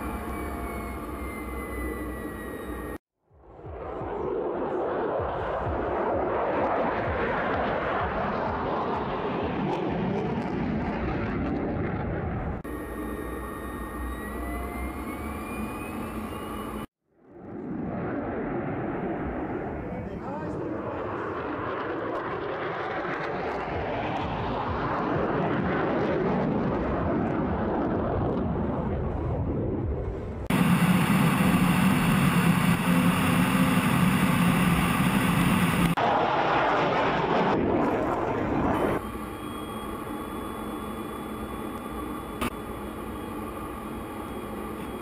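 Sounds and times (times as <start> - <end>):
jet cockpit hum: 0.0 - 3.0, 12.6 - 16.9, 30.4 - 36.0, 38.6 - 45.0
fighter jet roaring: 17.9 - 39.4.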